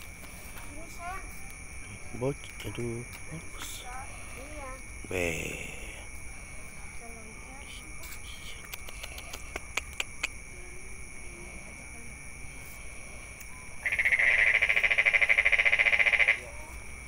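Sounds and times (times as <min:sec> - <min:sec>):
high-pitched background drone: 0:00.0 - 0:17.0
animal calling with pulsing trill: 0:13.8 - 0:16.5.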